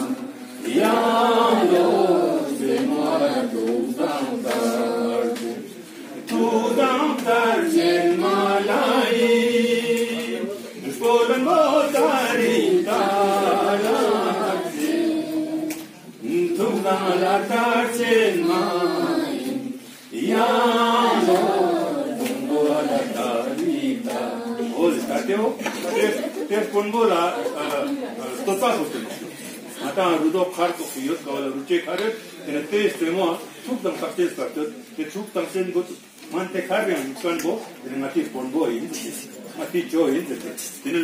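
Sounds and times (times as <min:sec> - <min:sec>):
man singing unaccompanied: 0:06.3 - 0:19.3.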